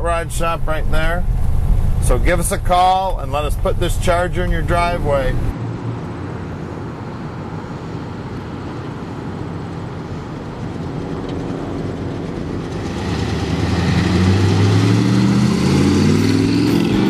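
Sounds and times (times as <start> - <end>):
vehicle engine driving past: 12.2 - 17.0.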